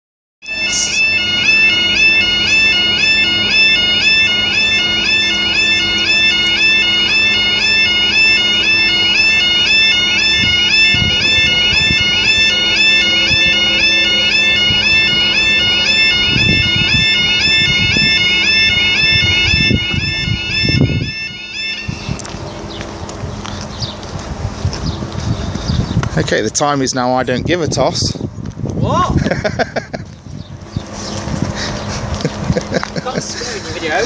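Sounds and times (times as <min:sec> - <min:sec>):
level crossing two-tone alarm: 0:00.4 - 0:22.8.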